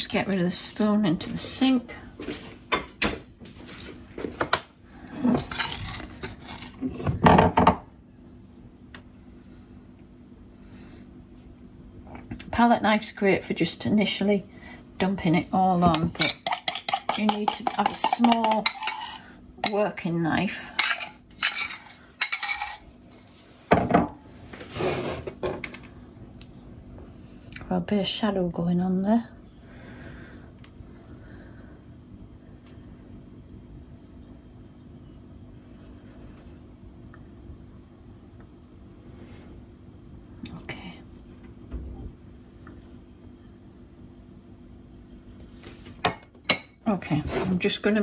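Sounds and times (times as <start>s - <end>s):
cutlery clinking and scraping: 16.1s - 19.2s, 20.7s - 22.9s.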